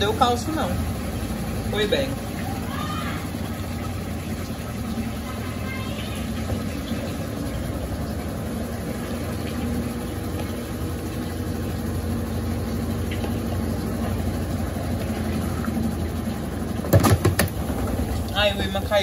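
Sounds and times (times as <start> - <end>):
washing machine spinning: 0.0 - 19.0.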